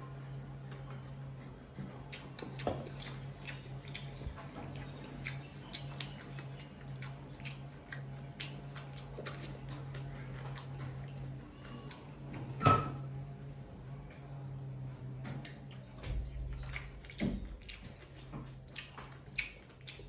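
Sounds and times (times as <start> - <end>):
steady low hum: 0.0 - 20.0
person chewing crunchy vegetables: 0.6 - 20.0
crisp mouth clicks: 18.8 - 20.0.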